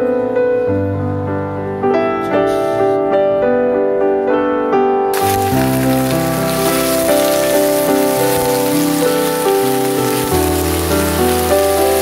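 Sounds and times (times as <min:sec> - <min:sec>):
background piano music: 0:00.0 - 0:12.0
greens sizzling in a wok: 0:05.2 - 0:12.0.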